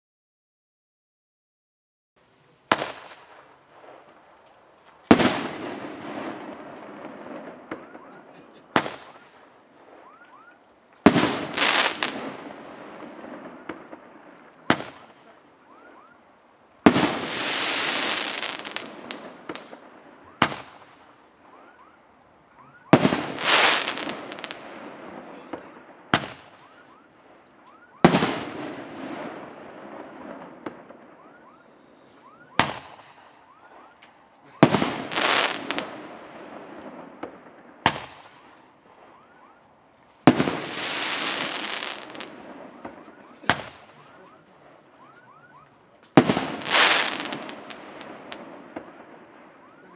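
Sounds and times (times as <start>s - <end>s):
firework shell bursting crackling: 2.6s - 15.4s, 16.8s - 21.6s, 22.8s - 25.1s, 34.6s - 39.1s, 40.2s - 44.0s, 46.0s - 49.6s.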